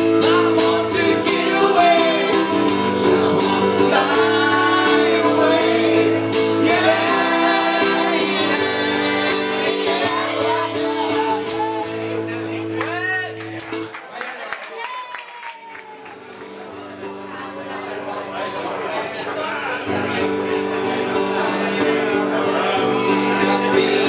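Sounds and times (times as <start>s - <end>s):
person singing: 0.0s - 12.7s, 20.2s - 24.0s
hand percussion beat: 0.0s - 13.9s
strummed acoustic guitar: 0.0s - 13.9s, 16.2s - 24.0s.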